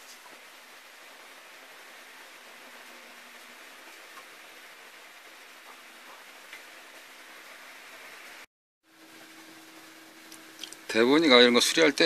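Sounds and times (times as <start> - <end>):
faint hiss and low hum: 0.0 - 12.0.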